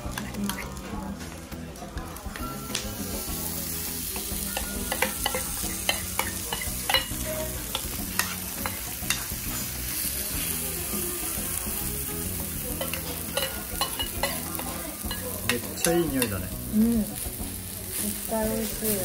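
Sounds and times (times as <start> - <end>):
batter sizzling on griddle: 0.0 - 19.0
metal spoon clinking on bowl: 4.5 - 9.3, 12.8 - 14.4.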